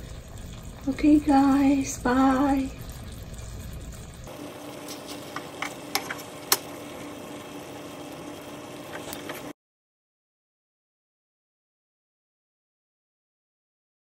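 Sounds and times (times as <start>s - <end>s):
steady low hum: 0.0s - 9.5s.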